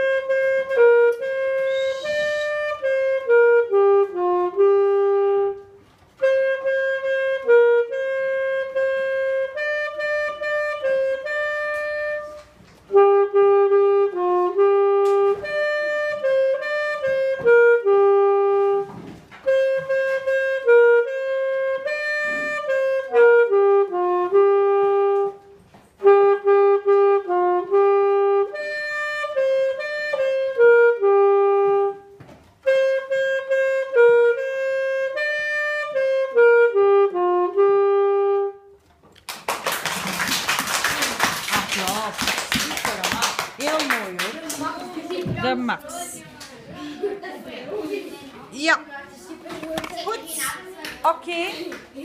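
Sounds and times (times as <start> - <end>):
alto saxophone melody: 0.0 - 39.0.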